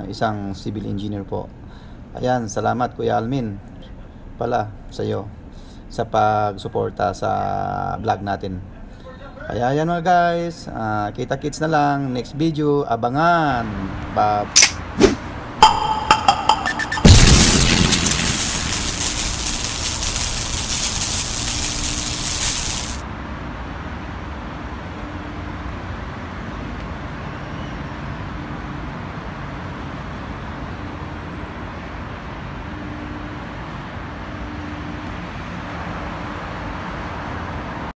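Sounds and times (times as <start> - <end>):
loud steady hiss: 16.9 - 23.1
road traffic noise: 17.2 - 37.9.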